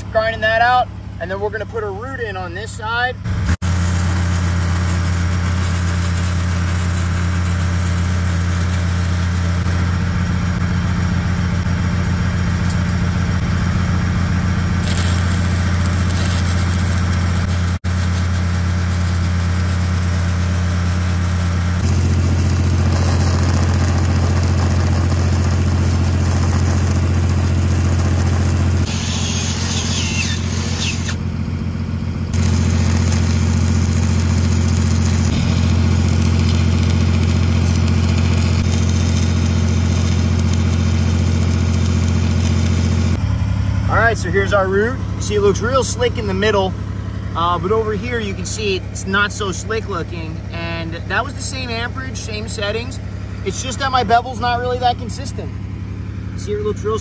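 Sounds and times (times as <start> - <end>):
welding machine engine hum: 2.0 - 57.0
welding arc crackling: 3.3 - 31.3, 32.1 - 43.2.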